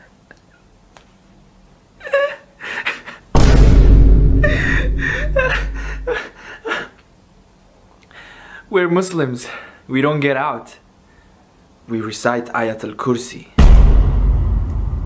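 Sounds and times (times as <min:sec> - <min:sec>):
man laughing: 0:02.0 - 0:03.3, 0:04.4 - 0:07.0
loud low rumble: 0:03.4 - 0:06.1, 0:13.6 - 0:15.0.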